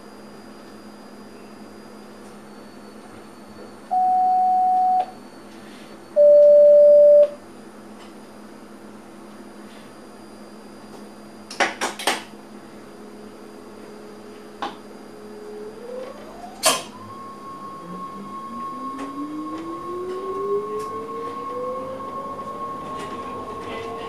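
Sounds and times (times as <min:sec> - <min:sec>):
electric train motor whine: 0:13.0 - 0:24.0.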